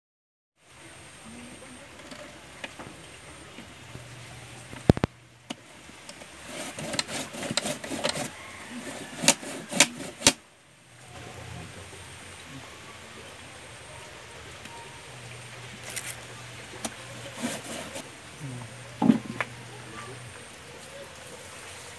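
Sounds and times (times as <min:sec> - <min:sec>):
root grated on metal grater: 0:06.1 - 0:10.4, 0:16.8 - 0:18.0
sharp knocks and clicks: 0:09.2 - 0:10.4.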